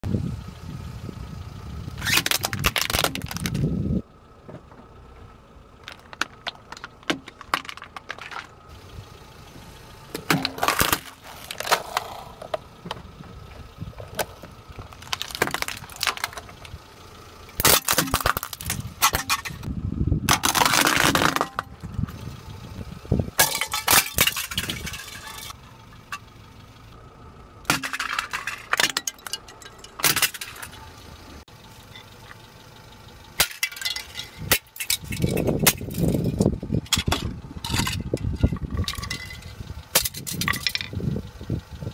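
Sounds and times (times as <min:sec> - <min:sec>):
low rumble of car tyre: 0:00.0 - 0:41.9
plastic toys cracking and crunching: 0:02.0 - 0:03.7, 0:05.8 - 0:08.6, 0:10.2 - 0:12.6, 0:14.1 - 0:16.7, 0:17.6 - 0:19.7, 0:20.3 - 0:21.7.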